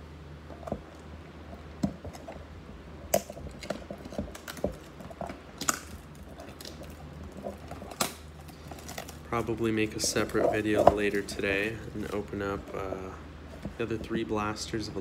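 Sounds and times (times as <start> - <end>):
foil packs crinkling: 3.1 - 13.0.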